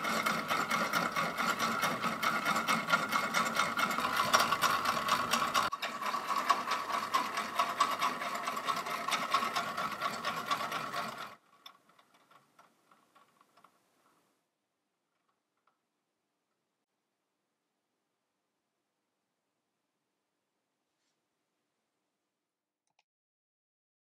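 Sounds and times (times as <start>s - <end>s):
clockwork gear whirring and ticking: 0.0s - 13.8s.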